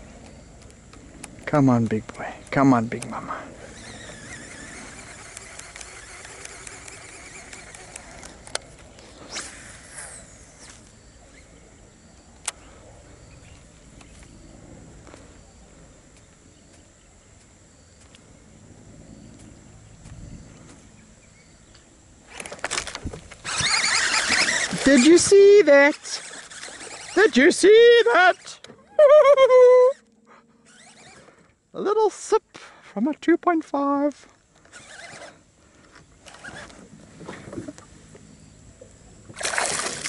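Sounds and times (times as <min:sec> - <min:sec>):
open-air ambience on water: 0:00.0 - 0:40.0.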